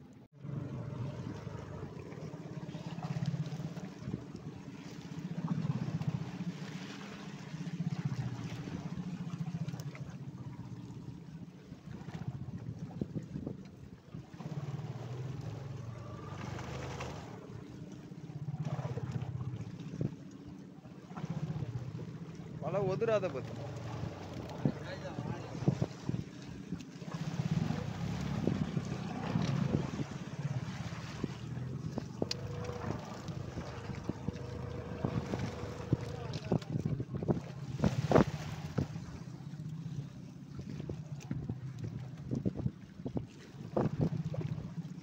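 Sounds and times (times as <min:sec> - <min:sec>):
boat engine throbbing: 0:00.0 - 0:45.0
wind buffeting microphone: 0:12.1 - 0:17.8, 0:23.5 - 0:39.4, 0:40.5 - 0:44.8.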